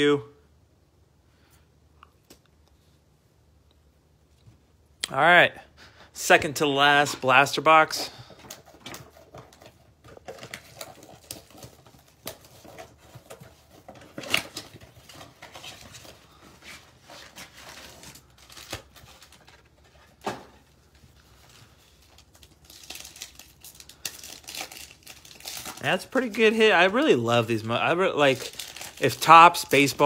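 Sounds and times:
foil packs crinkling: 0:07.2 - 0:30.0
cardboard box tearing and rustling: 0:08.8 - 0:19.6.

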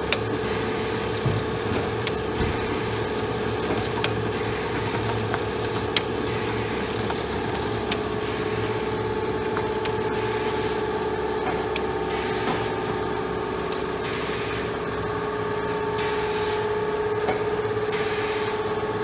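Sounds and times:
fast fine ticking: 0:00.0 - 0:11.0
machine motor hum: 0:00.0 - 0:19.0.

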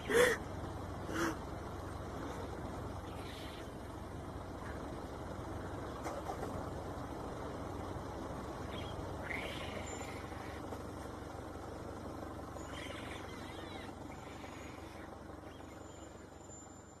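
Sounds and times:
vehicle engine idling: 0:00.0 - 0:17.0
faint high chirping calls: 0:03.0 - 0:04.0, 0:08.5 - 0:10.8, 0:12.2 - 0:17.0.

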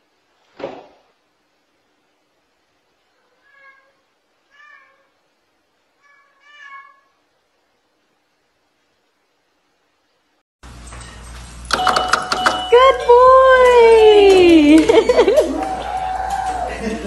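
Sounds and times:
cat meowing quietly: 0:03.1 - 0:05.1.

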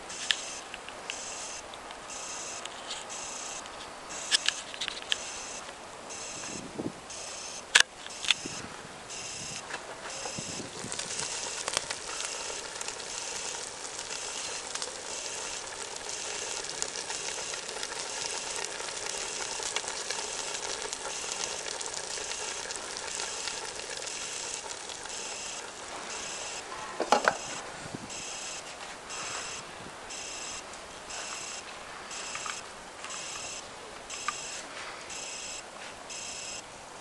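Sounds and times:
food sizzling in pan: 0:08.4 - 0:30.6.

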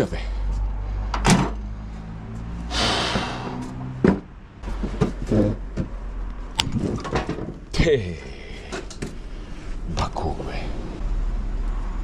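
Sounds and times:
knocks and clatters: 0:03.9 - 0:06.0, 0:06.6 - 0:07.7.

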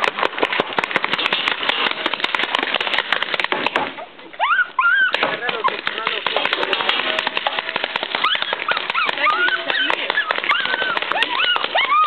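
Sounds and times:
paintball markers popping: 0:00.0 - 0:03.8, 0:05.1 - 0:12.0
high yelping cries: 0:04.3 - 0:05.2, 0:08.1 - 0:12.0.

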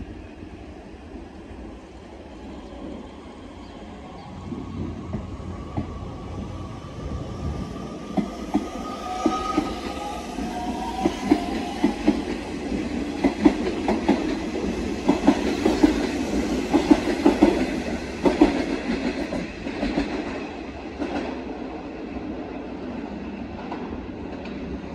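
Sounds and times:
train wheels clicking on rail joints: 0:07.8 - 0:21.4.

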